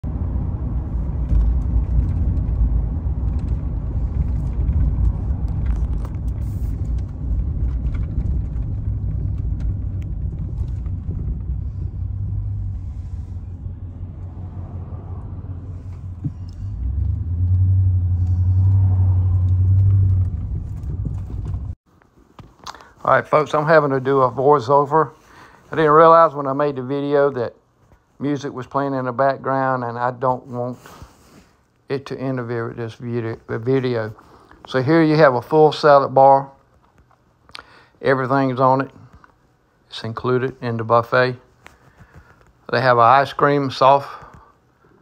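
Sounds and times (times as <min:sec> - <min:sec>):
car engine and road rumble: 0:00.0 - 0:21.8.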